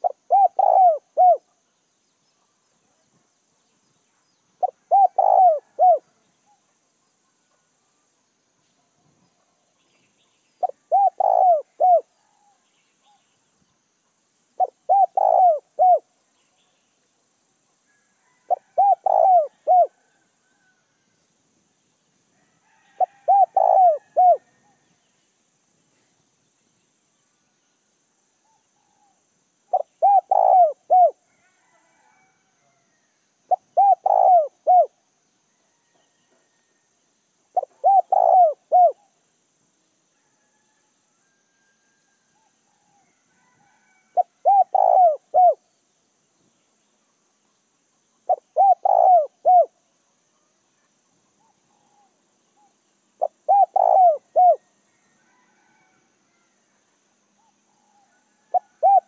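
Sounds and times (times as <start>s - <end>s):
dove cooing: 0.0s - 1.5s, 4.6s - 6.6s, 10.6s - 12.6s, 14.6s - 16.1s, 18.2s - 20.1s, 23.0s - 24.8s, 29.7s - 31.2s, 33.5s - 34.9s, 37.5s - 39.1s, 43.8s - 45.6s, 48.3s - 49.8s, 51.4s - 54.6s, 57.4s - 59.0s.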